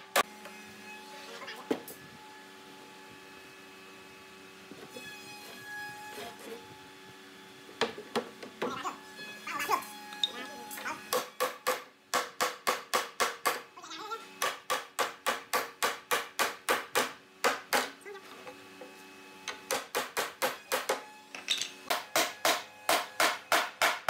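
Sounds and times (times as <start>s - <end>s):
hammer striking wood: 7.8s - 8.7s, 11.1s - 13.6s, 14.4s - 18.0s, 19.5s - 21.1s, 21.9s - 24.0s.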